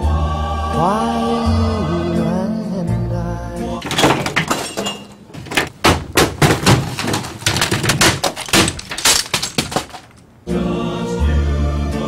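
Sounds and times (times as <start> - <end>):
office equipment being smashed: 3.8 - 10.4.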